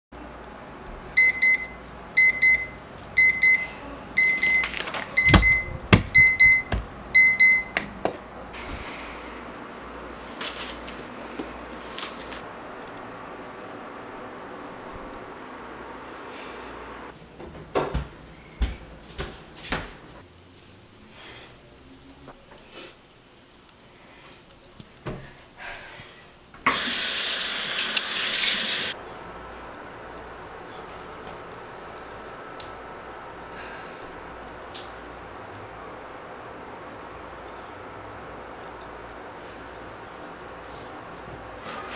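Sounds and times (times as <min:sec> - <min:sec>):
alarm clock beeping: 0:01.2 - 0:07.8.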